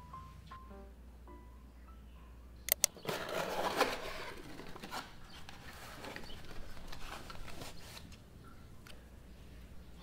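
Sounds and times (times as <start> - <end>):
cardboard box rustling: 3.0 - 8.1.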